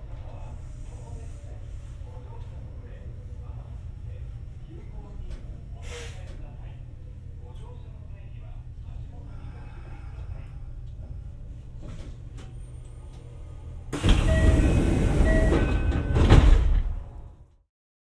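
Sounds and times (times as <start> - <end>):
train cab hum: 0.0 - 17.6
short beeps: 14.1 - 16.2.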